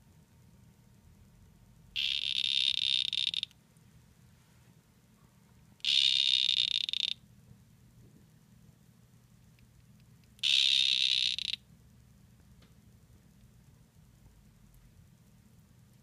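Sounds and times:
frog calling: 2.0 - 3.6, 5.8 - 7.2, 10.4 - 11.7.

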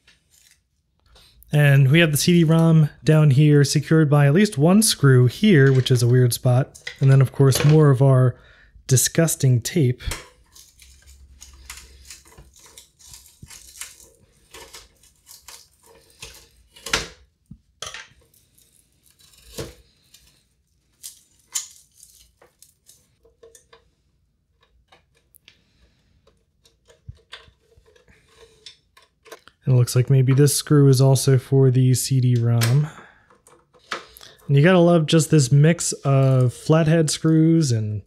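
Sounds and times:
tape crackling and tearing: 0.1 - 0.7, 10.4 - 17.0, 18.2 - 23.6.

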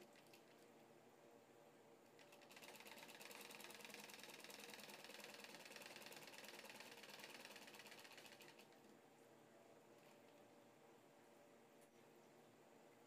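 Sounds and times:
sewing machine stitching: 2.2 - 8.6.

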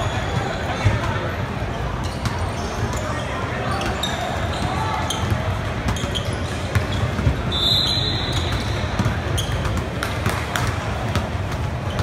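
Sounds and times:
sneakers squeaking: 0.0 - 12.0
spectators chattering: 0.0 - 12.0
basketball bouncing: 8.4 - 12.0.

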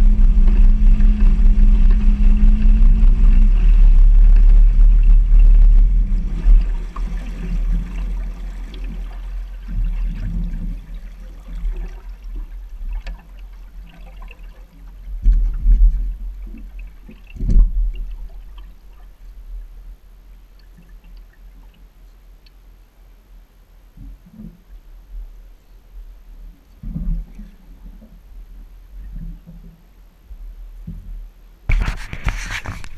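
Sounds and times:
low thumps: 0.0 - 10.8
water sloshing against boat hull: 0.0 - 22.6, 26.6 - 30.0, 30.8 - 32.9.

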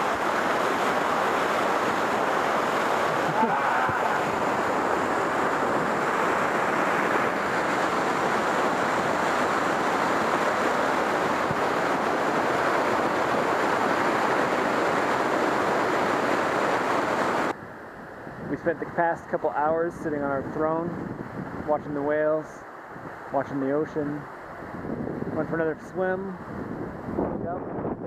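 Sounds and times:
waterfall rushing over rocks: 0.0 - 17.5.

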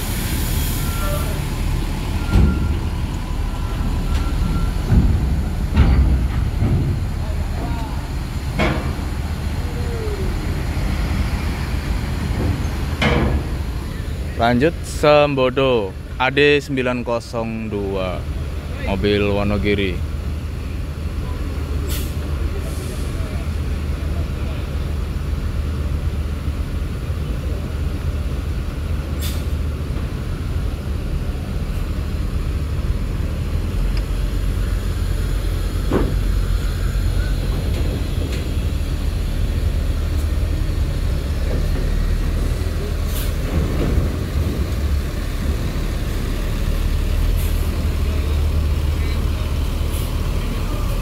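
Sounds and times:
bus diesel engines rumbling: 0.0 - 51.0
air-brake hisses: 29.2 - 29.6.

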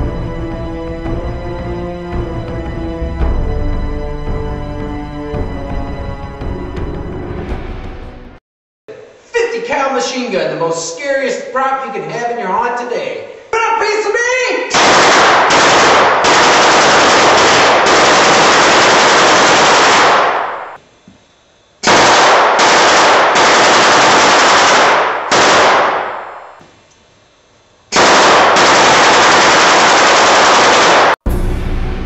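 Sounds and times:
machine gun prop firing bursts: 14.8 - 20.5, 21.8 - 26.0, 27.9 - 31.2.

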